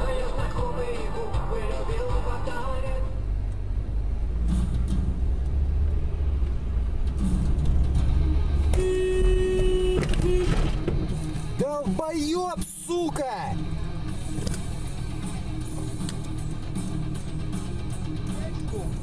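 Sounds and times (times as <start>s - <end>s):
car horn: 0.0s - 3.2s, 8.7s - 10.8s
car engine and road rumble: 0.0s - 19.0s.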